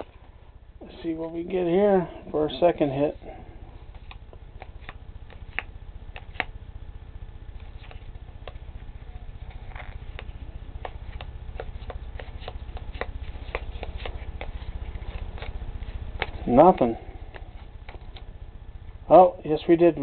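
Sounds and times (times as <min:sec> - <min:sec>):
low steady hum: 0:00.0 - 0:20.0
trading cards flicking: 0:03.9 - 0:06.6, 0:07.5 - 0:18.3.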